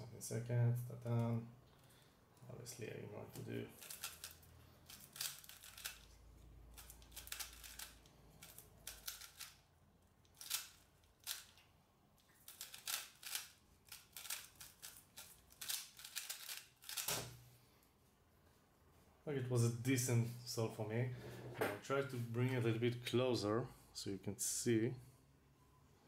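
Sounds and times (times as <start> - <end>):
puzzle cube plastic clicks: 3.8 - 9.6, 10.3 - 11.6, 12.4 - 17.3.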